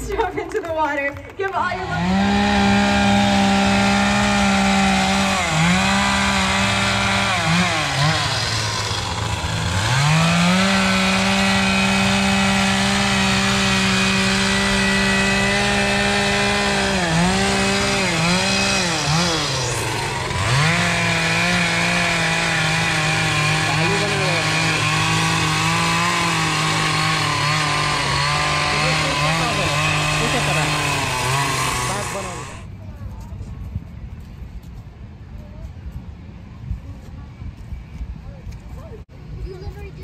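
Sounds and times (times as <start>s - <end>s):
chainsaw running at high revs: 1.4s - 32.7s.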